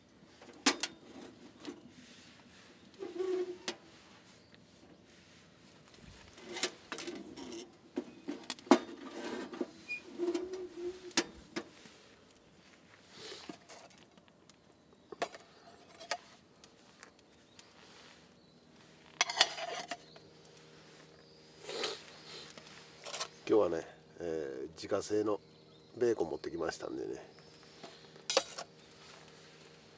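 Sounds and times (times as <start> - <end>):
cooking utensils clattering: 19.2 - 20.0.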